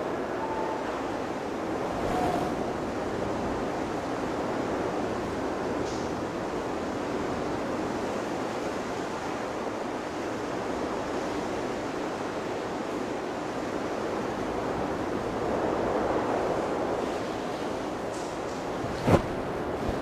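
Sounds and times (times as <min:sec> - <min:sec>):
steady rushing noise: 0:00.0 - 0:05.6, 0:14.7 - 0:20.0.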